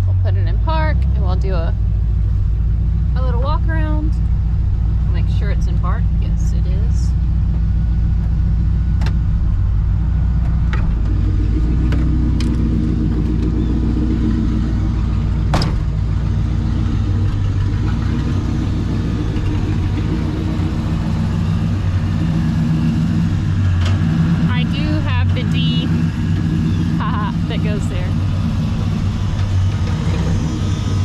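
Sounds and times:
car engine running at low revs: 0:00.0 - 0:31.0.

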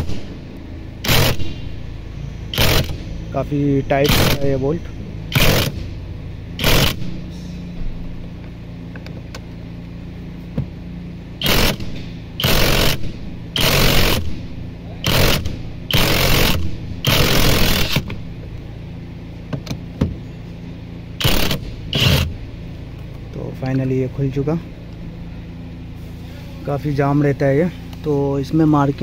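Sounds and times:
impact wrench hammering: 0:00.0 - 0:00.4, 0:01.0 - 0:01.8, 0:02.5 - 0:03.2, 0:04.0 - 0:06.0, 0:06.6 - 0:07.3, 0:11.4 - 0:18.3, 0:21.2 - 0:22.4.

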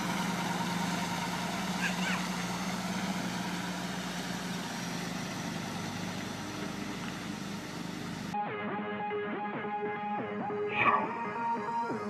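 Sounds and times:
diesel truck engine: 0:00.0 - 0:08.4.

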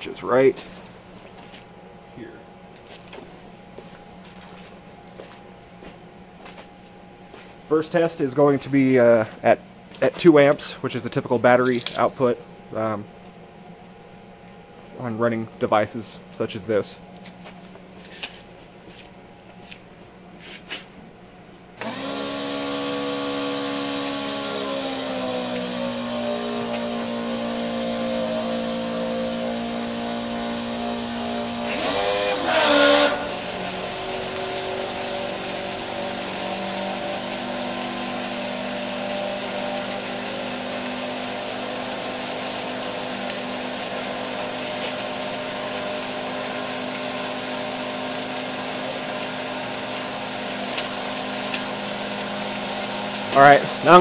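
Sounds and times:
electric water pump humming: 0:00.7 - 0:10.7, 0:21.7 - 0:54.0
water spraying from a nozzle: 0:21.8 - 0:54.0.

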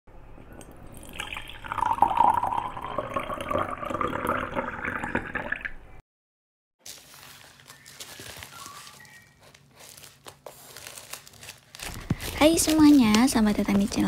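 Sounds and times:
water pouring into glass jar: 0:00.5 - 0:05.8.

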